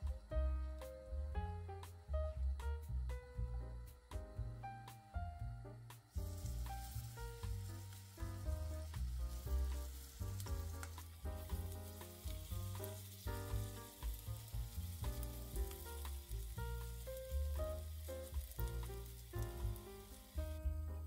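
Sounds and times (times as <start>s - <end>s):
background music with bass line: 0.0s - 21.0s
batter sizzling in hot oil: 5.8s - 21.0s.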